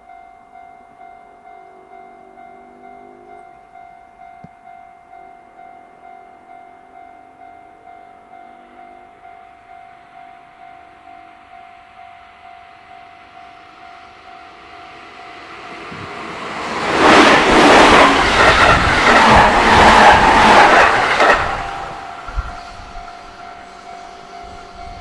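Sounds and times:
level-crossing warning bell: 0:00.0 - 0:25.0
train passing on rails: 0:00.8 - 0:25.0
wheels clattering over rail joints: 0:16.1 - 0:23.6.

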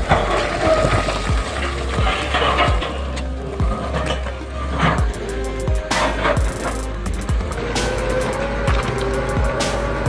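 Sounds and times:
quick ticking hi-hats: 0:05.0 - 0:09.8
deep sliding bass hits: 0:05.0 - 0:10.0.

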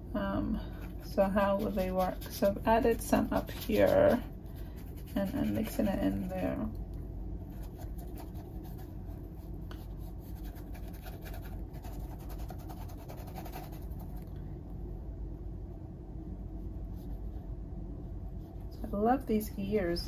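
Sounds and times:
steady low hum: 0:00.0 - 0:20.0
paintbrush scrubbing canvas: 0:00.8 - 0:06.5, 0:07.5 - 0:14.2.

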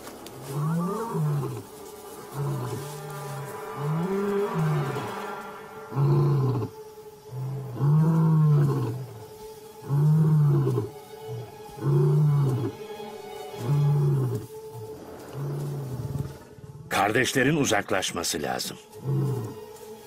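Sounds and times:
background music: 0:00.0 - 0:20.0
lion roaring: 0:00.4 - 0:09.2, 0:09.8 - 0:12.8, 0:13.6 - 0:17.0, 0:19.0 - 0:19.6.

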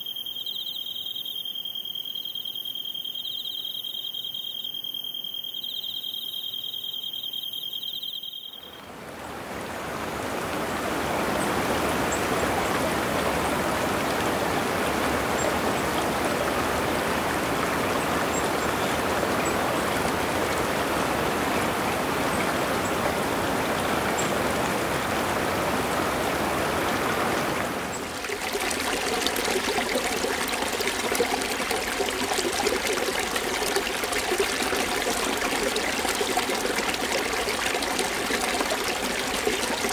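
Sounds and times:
insects trilling: 0:00.0 - 0:08.9
stream water rushing: 0:08.6 - 0:39.9
water splashing down a cascade: 0:09.2 - 0:39.9.

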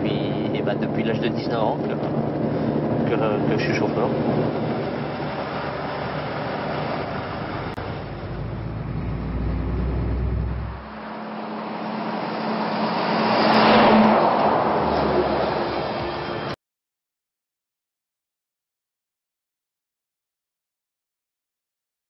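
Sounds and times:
truck driving past: 0:00.0 - 0:16.6
truck engine and road rumble: 0:00.0 - 0:16.6.

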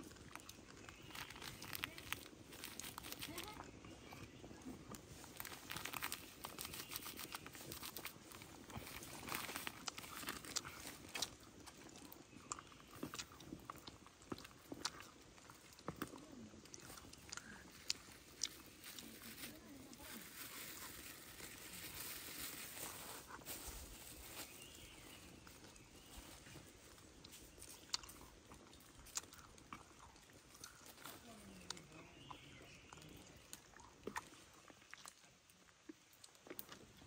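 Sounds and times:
wood fire crackling: 0:00.0 - 0:24.4.

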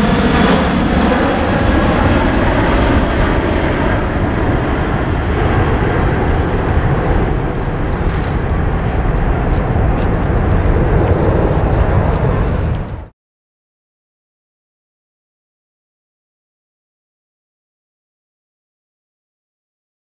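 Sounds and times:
jet engines roaring: 0:00.0 - 0:13.1.

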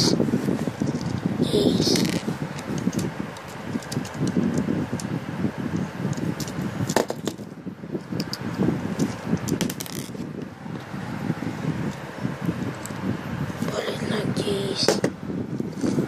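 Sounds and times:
plastic bricks clicking and rattling: 0:09.0 - 0:10.2.

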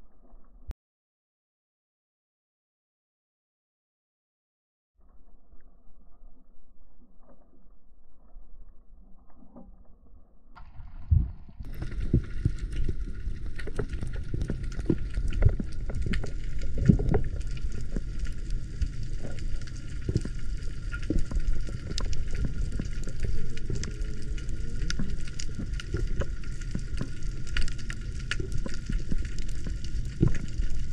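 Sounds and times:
underwater water wash: 0:10.6 - 0:30.9.

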